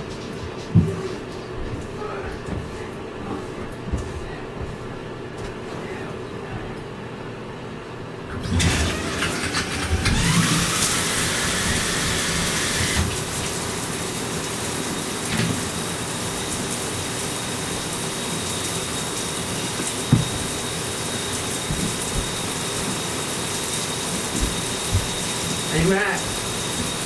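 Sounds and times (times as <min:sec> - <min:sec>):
tap water running into tub: 0:08.4 - 0:27.0
tap whining: 0:19.8 - 0:20.5.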